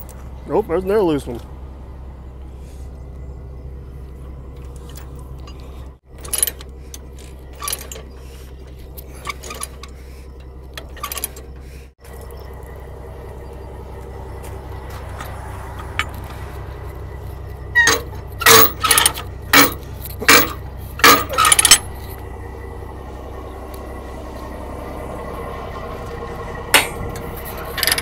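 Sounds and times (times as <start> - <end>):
diesel engine idling: 0.0 - 28.0
steel chains clanking: 4.6 - 12.4, 15.1 - 22.2, 26.7 - 28.0.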